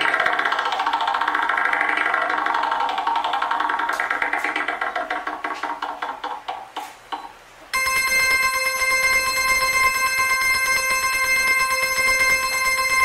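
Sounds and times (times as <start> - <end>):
sharp clicking percussion hits: 0.0 - 6.3, 7.8 - 13.0
backing music: 7.8 - 13.0
high-pitched bell ringing: 7.8 - 13.0.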